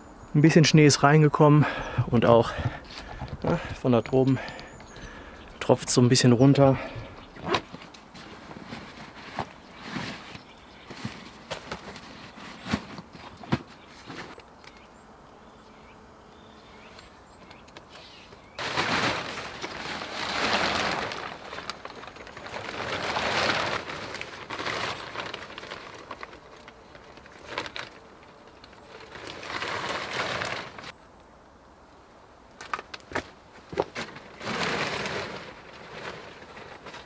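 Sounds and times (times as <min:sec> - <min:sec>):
tarp fabric rustling: 0:02.4 - 0:14.4, 0:18.0 - 0:31.0, 0:33.1 - 0:37.0.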